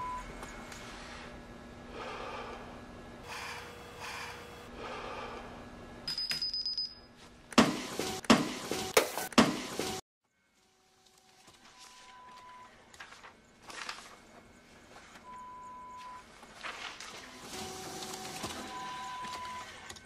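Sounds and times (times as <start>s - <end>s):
faint hum: 0.0s - 7.6s, 10.3s - 20.0s
man breathing heavily: 0.9s - 5.7s.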